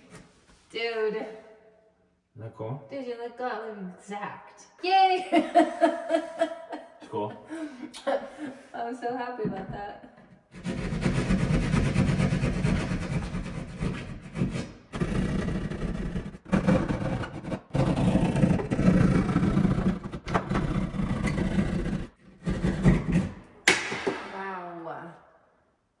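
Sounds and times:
saw cutting through drywall: 10.5 - 24.0.

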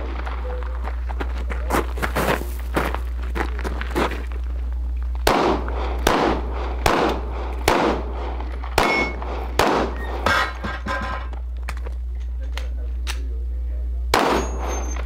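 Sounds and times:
pistol shots with echo: 5.2 - 10.4, 14.1 - 15.0.

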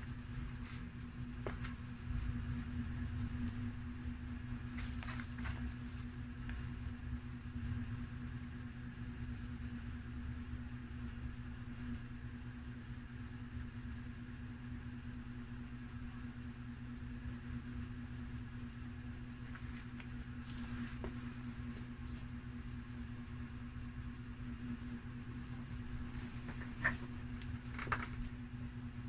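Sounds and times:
paper liner crackling: 0.0 - 3.7, 25.9 - 28.4
low motor hum: 0.0 - 29.0.

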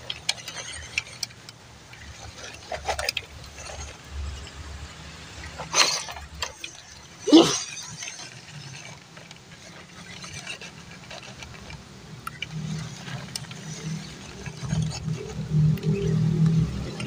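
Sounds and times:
rc truck motor whirring: 0.0 - 17.0
small clicks: 7.9 - 17.0.

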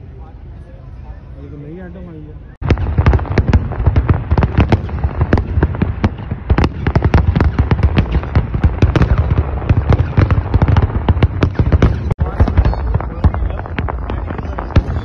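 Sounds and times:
fireworks bangs: 2.6 - 15.0.

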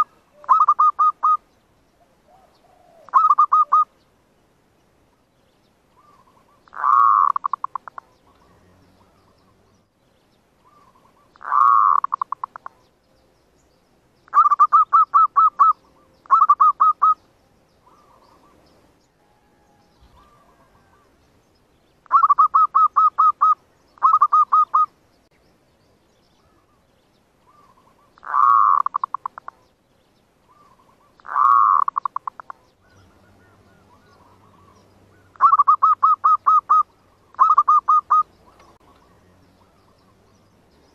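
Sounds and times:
dove cooing: 0.0 - 1.4, 2.0 - 3.9, 6.0 - 9.6, 10.6 - 12.9, 14.3 - 17.2, 17.8 - 18.6, 19.3 - 21.2, 22.1 - 24.9, 27.4 - 29.6, 30.5 - 40.3.

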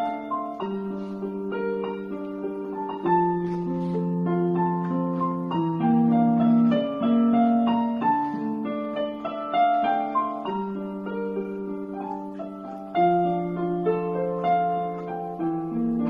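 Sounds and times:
electronic keyboard piano melody: 0.0 - 16.0.

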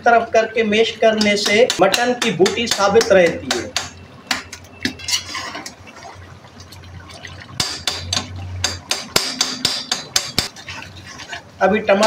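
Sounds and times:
metal spatula scraping iron pan: 4.9 - 5.8.

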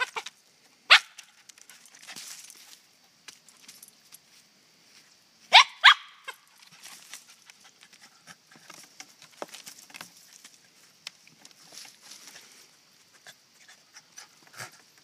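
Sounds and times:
rustling and scratching in dry leaves: 0.0 - 5.2, 6.3 - 15.0
dog yipping: 0.9 - 1.2, 5.5 - 6.5.

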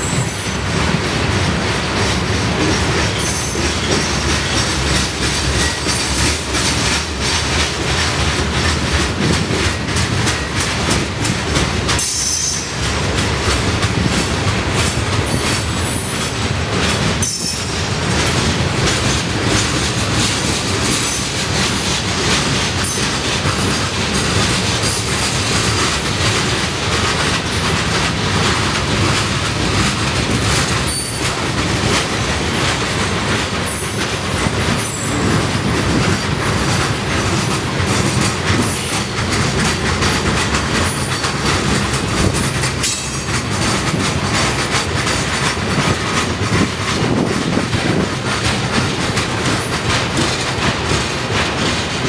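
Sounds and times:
train wheels clattering over rail joints: 0.0 - 52.0
high wheel squeals: 3.1 - 4.8, 17.2 - 17.9, 30.8 - 31.2.

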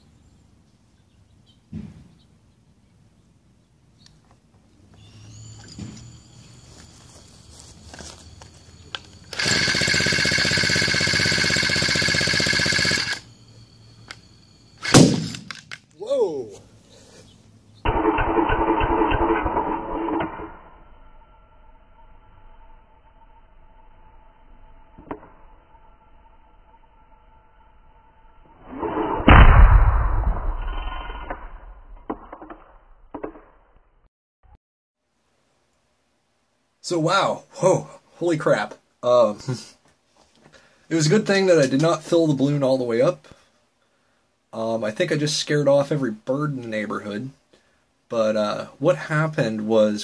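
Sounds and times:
small engine firing rapidly: 9.2 - 13.3, 14.8 - 15.4, 17.9 - 20.6
loud bang of balloon exploding: 29.2 - 30.8.

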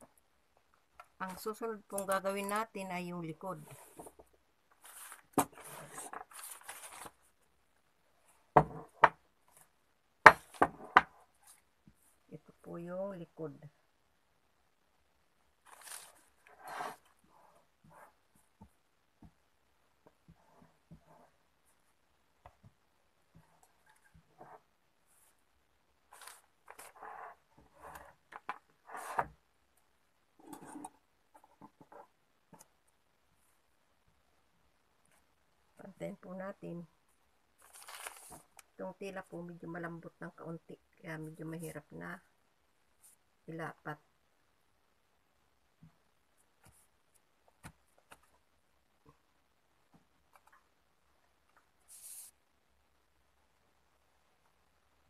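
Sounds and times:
paper and cloth rustling: 4.8 - 7.4, 15.6 - 17.1, 37.6 - 38.6.

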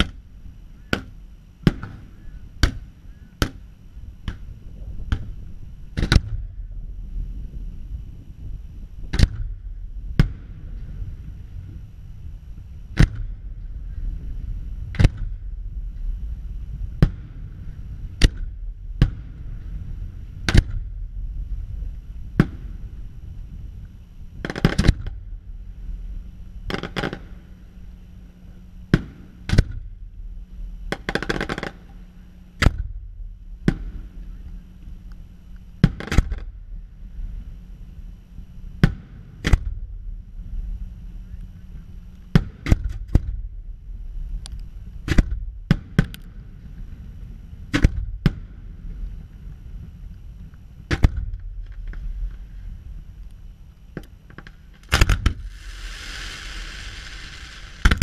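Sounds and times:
low rumble: 0.0 - 31.0, 46.4 - 58.0
fireworks bangs: 54.9 - 58.0.

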